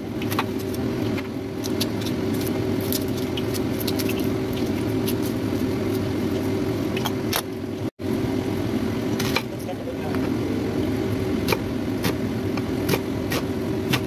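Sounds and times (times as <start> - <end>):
steady low hum: 0.0 - 14.0
onion skin crackling: 1.6 - 6.6.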